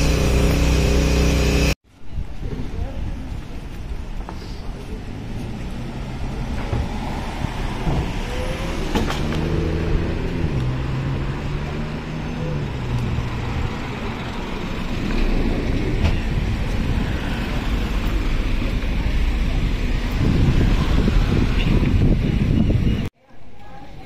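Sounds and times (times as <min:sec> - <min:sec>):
engine humming: 0:00.0 - 0:01.8
outdoor background noise: 0:00.0 - 0:24.0.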